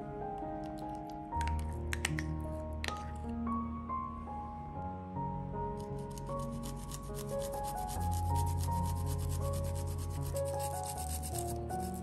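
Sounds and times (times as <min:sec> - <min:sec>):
background music: 0:00.0 - 0:12.0
garlic rasping on metal grater: 0:05.9 - 0:12.0.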